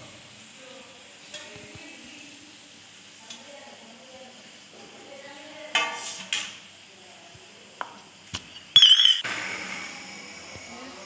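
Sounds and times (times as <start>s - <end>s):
steel kitchenware clinking: 8.8s - 9.2s.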